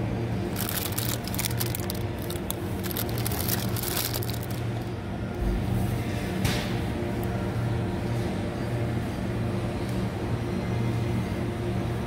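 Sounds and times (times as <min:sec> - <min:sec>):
steady low hum: 0:00.0 - 0:12.0
plastic bags crinkling: 0:00.4 - 0:04.9.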